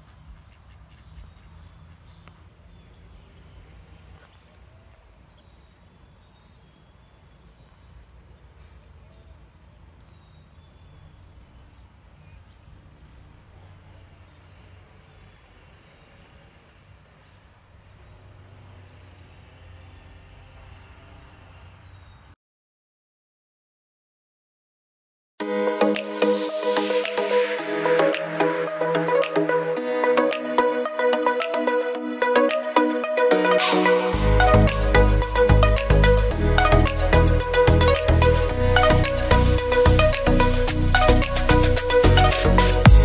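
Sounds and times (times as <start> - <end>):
bird chirps: 0.0 - 22.4
insect chirping: 6.4 - 9.1, 10.9 - 22.1.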